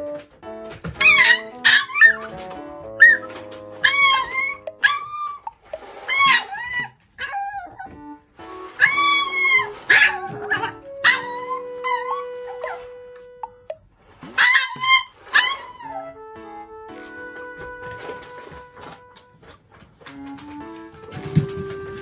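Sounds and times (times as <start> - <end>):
puppy yelping howls: 1.0 - 2.4, 3.0 - 5.5, 6.1 - 8.0, 8.8 - 13.7, 14.4 - 16.1.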